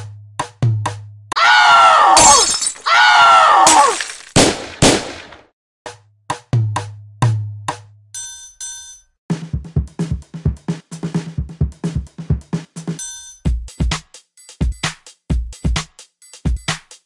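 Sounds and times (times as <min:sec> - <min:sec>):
music: 0:00.0 - 0:01.4, 0:05.8 - 0:17.0
sharp crashes: 0:02.1 - 0:02.9, 0:03.6 - 0:05.4
drum machine beat: 0:09.3 - 0:17.0.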